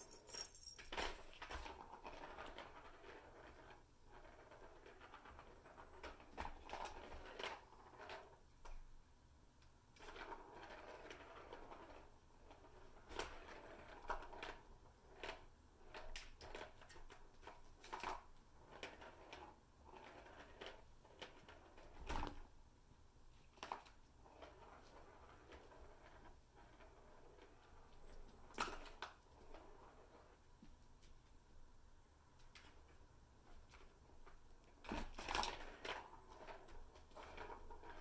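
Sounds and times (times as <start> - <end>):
balls clicking on plastic track: 0.0 - 8.8, 9.6 - 22.5, 23.4 - 30.4, 32.4 - 38.0.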